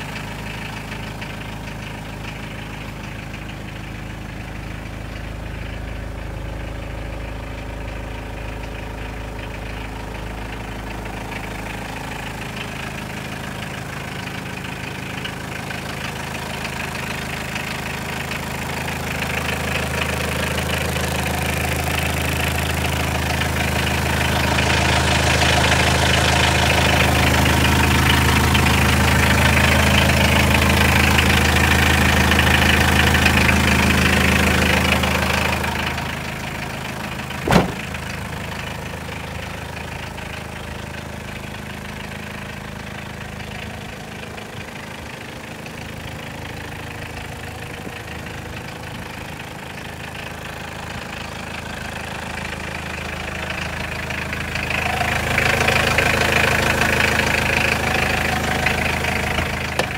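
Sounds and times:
truck engine idling: 0.0s - 59.9s
sharp knock: 37.5s - 37.9s.

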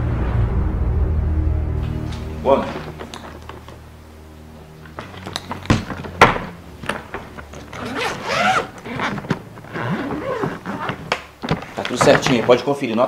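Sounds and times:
suitcase zipper opening: 4.9s - 12.6s.

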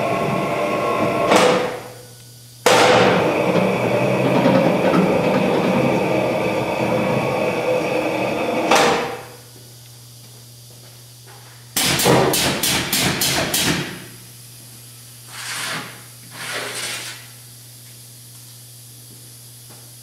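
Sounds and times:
sheet metal scraping slides: 15.3s - 17.2s.

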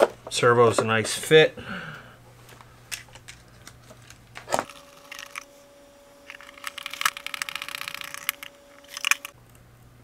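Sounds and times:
small hardware parts clicking: 6.3s - 9.4s.

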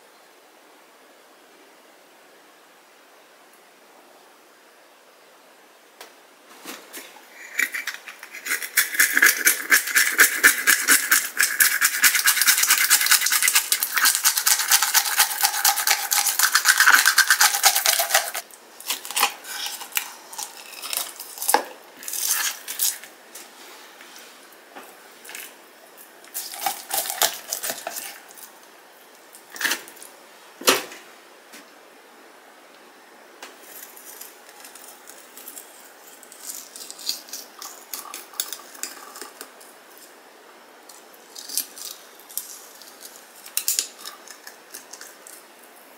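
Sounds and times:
knife scraping fish scales: 7.3s - 23.1s.

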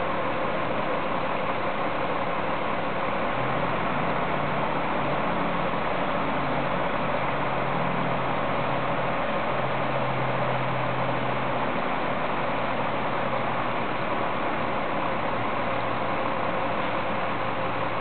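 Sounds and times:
constant hiss: 0.0s - 18.0s
crane engine running: 0.0s - 18.0s.

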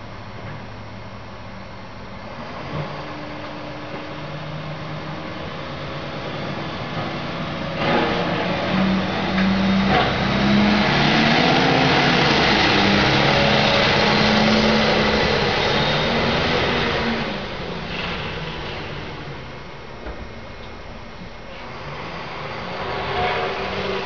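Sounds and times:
vehicle engine passing: 7.8s - 19.9s.

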